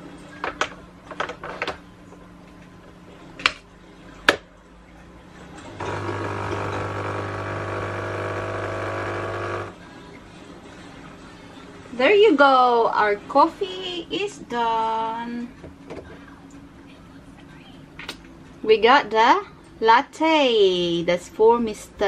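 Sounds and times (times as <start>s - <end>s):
coffee machine pump buzzing: 5.7s - 9.8s.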